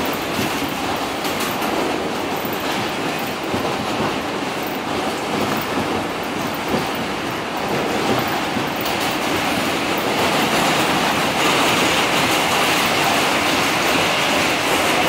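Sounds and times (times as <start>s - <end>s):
subway train wheels rumbling: 0.0s - 15.0s.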